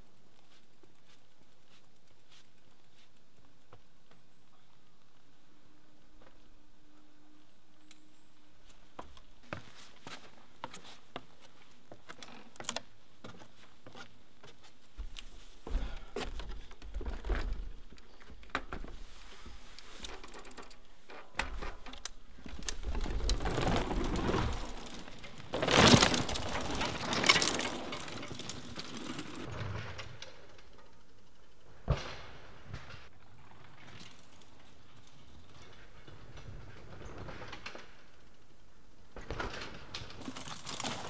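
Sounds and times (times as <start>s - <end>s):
bike freehub clicking: 0.0s - 4.2s.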